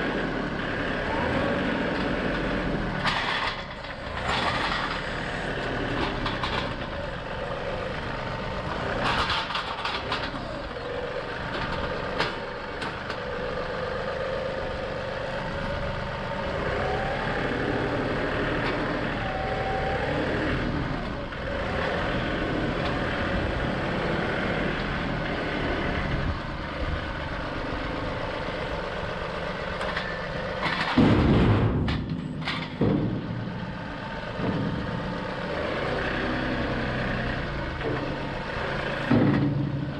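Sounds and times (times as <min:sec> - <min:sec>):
tractor diesel engine running: 0:00.0 - 0:39.9
stump thumping into metal trailer: 0:30.7 - 0:33.4, 0:39.0 - 0:39.9.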